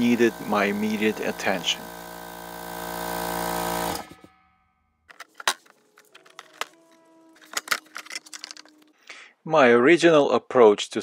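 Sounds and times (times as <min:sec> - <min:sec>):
air compressor motor hum: 0:00.0 - 0:04.3.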